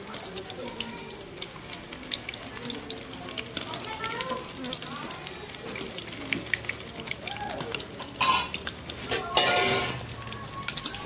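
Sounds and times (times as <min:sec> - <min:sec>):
eggs frying in oil: 0:00.0 - 0:11.0
metal spoon scraping a pan: 0:08.0 - 0:10.1.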